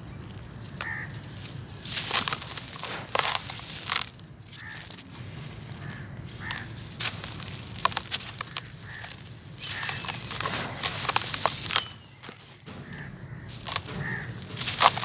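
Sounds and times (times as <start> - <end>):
charcoal powder pattering down: 0.0 - 15.0
sharp crackles: 0.0 - 15.0.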